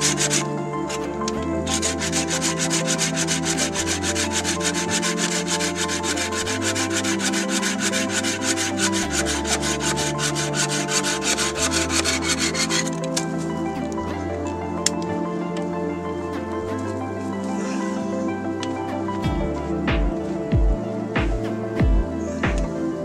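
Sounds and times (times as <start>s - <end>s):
hand saw cutting log: 0.0s - 1.1s, 1.7s - 13.3s
background music: 0.0s - 23.0s.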